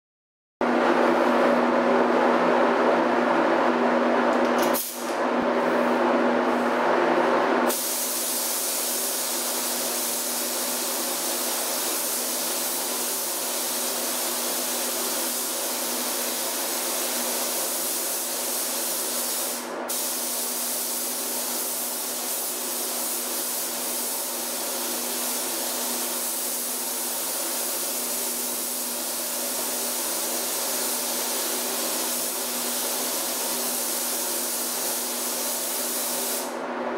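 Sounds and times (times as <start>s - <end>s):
paint spray gun hissing: 7.7s - 36.6s.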